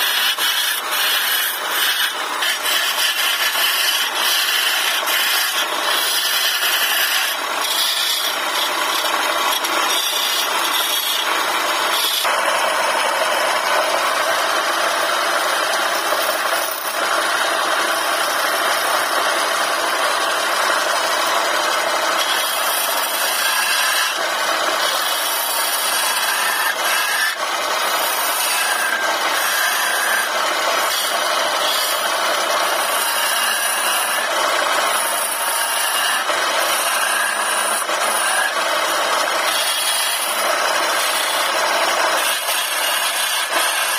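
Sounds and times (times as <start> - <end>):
chisel scraping wood on lathe: 0.0 - 43.9.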